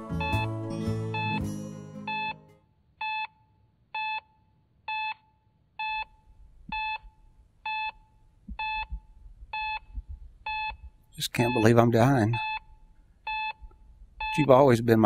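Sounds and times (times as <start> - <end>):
music: 0.0 - 2.6
patient monitor beeping: 0.1 - 0.5, 1.1 - 2.4, 3.0 - 14.7.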